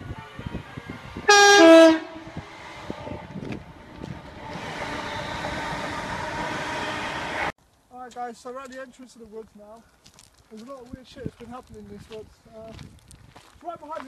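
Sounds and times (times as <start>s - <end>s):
train rushing past: 0.0s - 7.6s
train two-tone horn: 0.1s - 3.5s, 4.3s - 7.5s.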